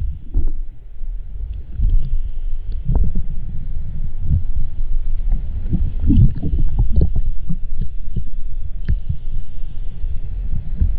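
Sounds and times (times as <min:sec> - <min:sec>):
muffled underwater thumps: 0:05.7 - 0:09.2.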